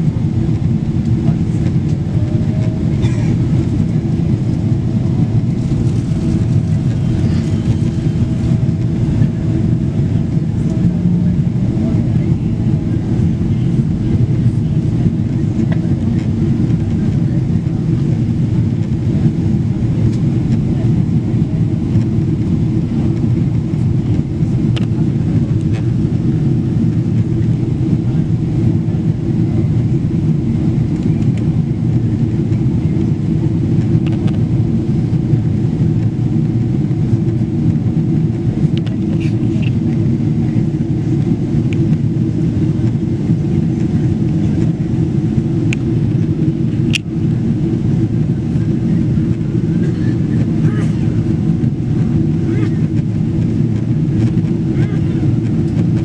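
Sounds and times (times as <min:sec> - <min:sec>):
jet engine rumble in cabin: 0:00.0 - 0:56.0.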